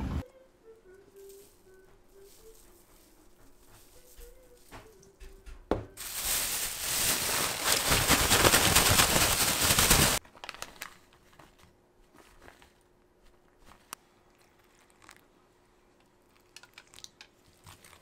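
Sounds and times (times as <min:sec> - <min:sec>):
plastic bag crinkling: 0:06.0 - 0:11.6.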